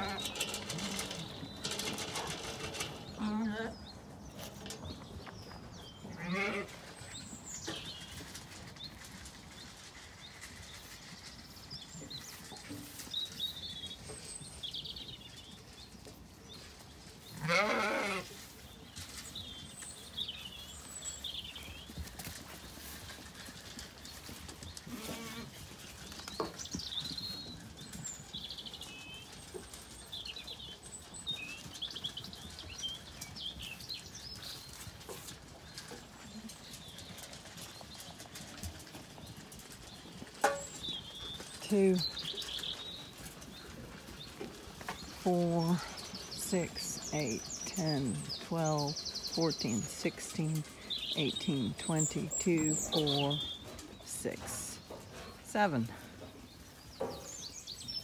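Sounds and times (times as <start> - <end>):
small birds chirping: 0.0 - 58.0
sheep bleating: 17.4 - 18.3.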